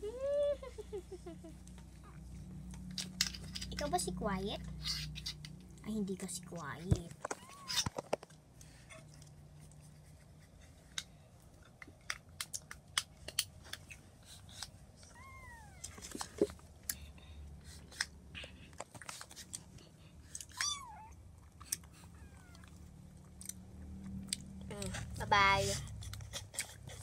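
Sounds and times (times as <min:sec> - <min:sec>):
kitten mewing: 0:20.4 - 0:21.2.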